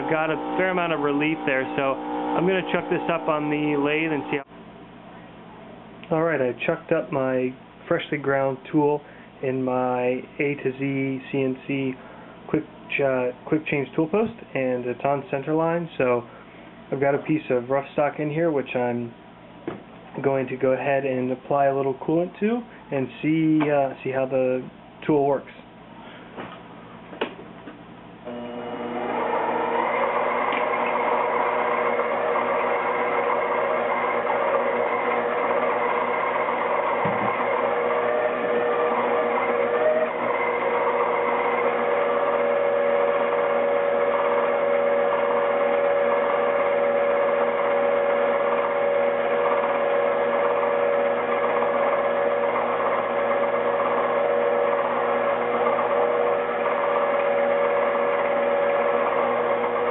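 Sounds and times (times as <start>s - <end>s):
lathe motor whining: 0.0s - 4.5s, 28.3s - 59.9s.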